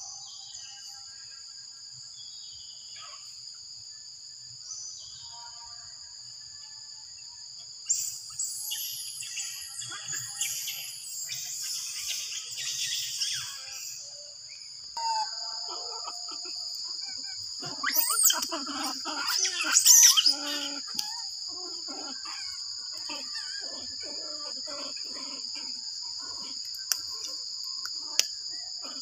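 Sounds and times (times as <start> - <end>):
insects droning high-pitched: 0.0 - 29.0
squealing and chirping animal calls: 15.0 - 27.4.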